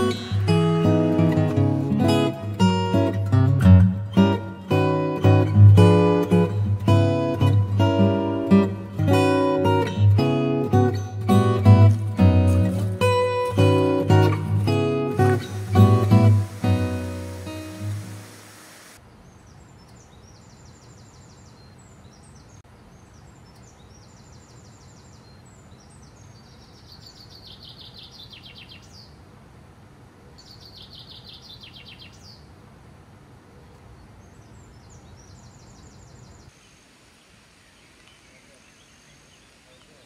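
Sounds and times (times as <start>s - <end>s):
acoustic guitar music: 0.0s - 18.8s
low outdoor background: 0.0s - 40.0s.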